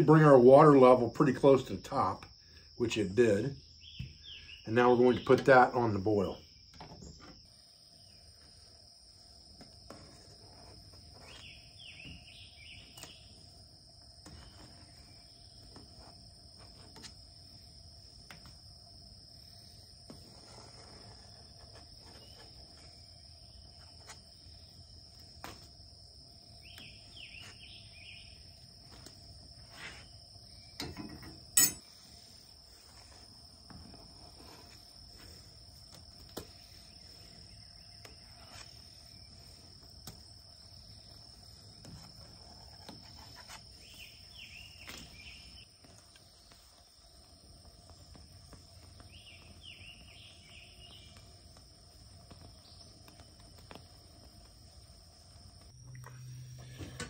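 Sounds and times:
insects droning: 0.0 - 57.0
water boiling in pot: 45.6 - 56.6.

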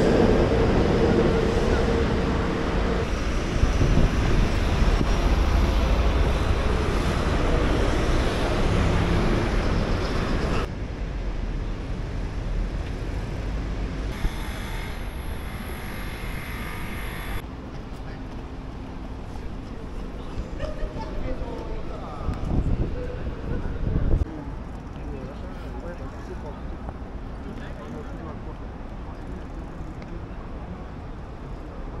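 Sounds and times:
wind on microphone: 0.0 - 10.6, 22.2 - 24.7
moving vehicle rumble: 0.0 - 20.8.

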